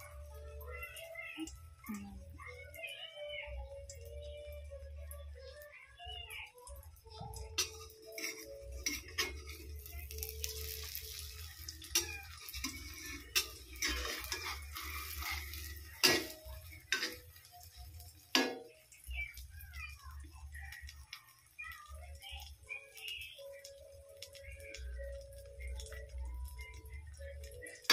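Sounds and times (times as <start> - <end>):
food sizzling in oil: 0.0 - 27.9
spatula scraping steel wok: 7.6 - 17.4.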